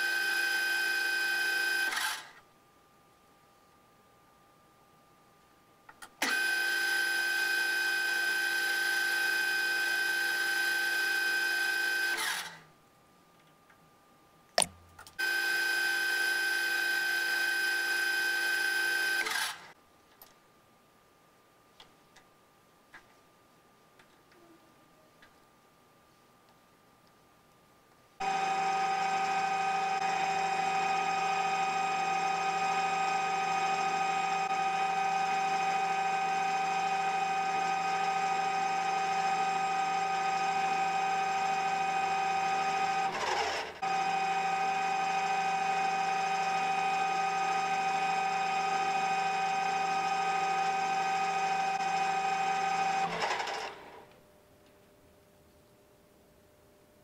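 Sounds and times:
bench lathe whining: 28.2 - 54.1.

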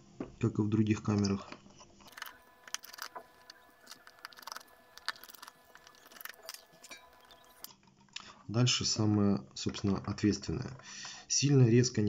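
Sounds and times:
small screwdriver clicks and scrapes: 2.1 - 7.7.

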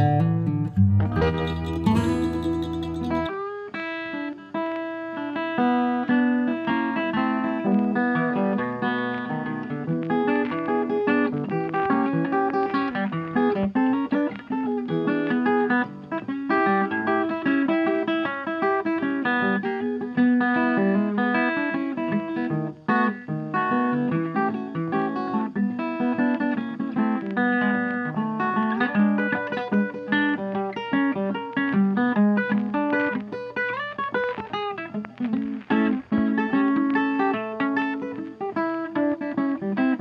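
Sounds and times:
plucked acoustic guitar: 0.0 - 40.0.

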